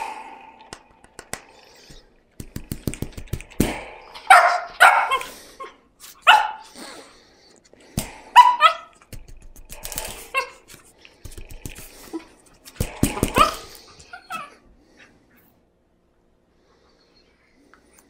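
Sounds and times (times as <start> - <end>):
puppy yipping and barking: 4.3 - 5.3, 6.3 - 6.7, 8.4 - 8.9, 13.4 - 14.5.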